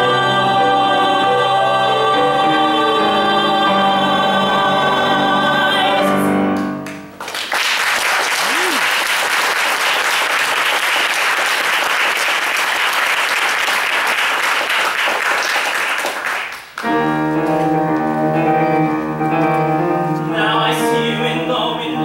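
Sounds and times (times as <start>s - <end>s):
grand piano playing chords: 0.0s - 7.2s, 16.8s - 22.0s
audience applauding: 6.8s - 17.0s.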